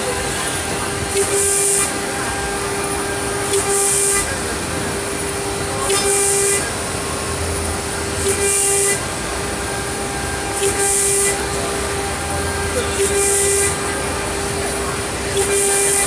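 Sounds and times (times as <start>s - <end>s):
high hiss of cutting metal: 1.1s - 2.3s, 3.4s - 4.8s, 5.6s - 6.8s, 8.0s - 9.5s, 10.5s - 11.6s, 12.6s - 14.0s.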